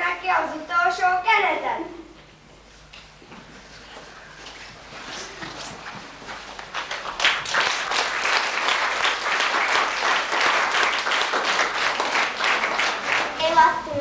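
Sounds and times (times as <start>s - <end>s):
audience applauding: 6.5s - 13.5s.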